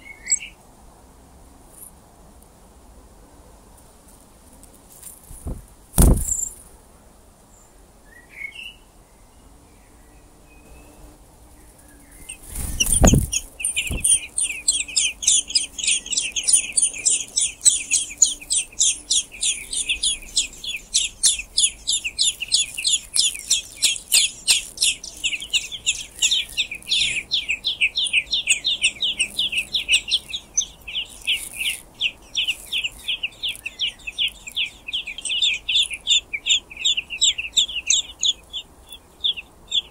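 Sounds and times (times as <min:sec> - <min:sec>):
nestlings peeping: 0:00.0 - 0:00.6, 0:05.4 - 0:06.6, 0:10.6 - 0:39.9
wing flutter: 0:04.6 - 0:06.6, 0:11.7 - 0:39.0.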